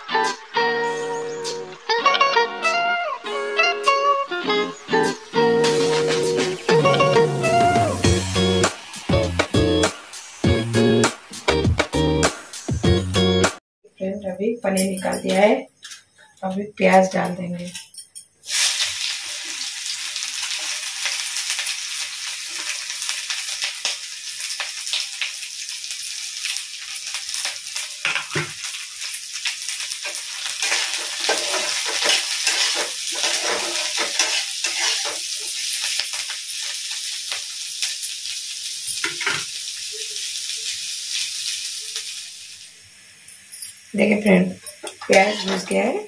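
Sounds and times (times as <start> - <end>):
onions sizzling in hot oil: 3.2 - 13.4, 18.4 - 46.0
spatula scraping a pan: 30.0 - 36.8, 44.8 - 45.8.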